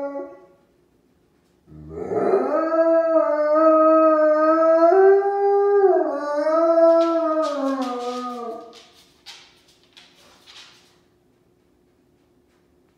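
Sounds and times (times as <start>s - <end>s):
dog howling: 0.0s - 0.5s, 1.7s - 8.8s.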